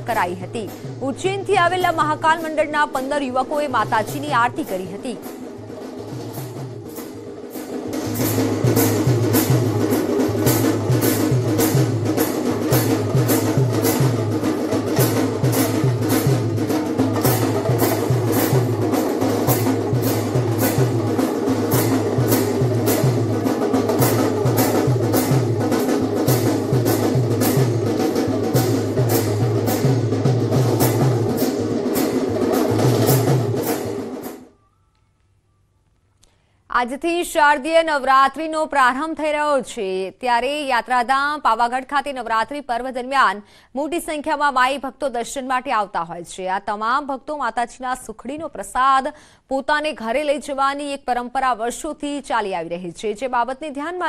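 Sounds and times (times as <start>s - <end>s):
hand drums playing rhythm: 0.0s - 34.5s.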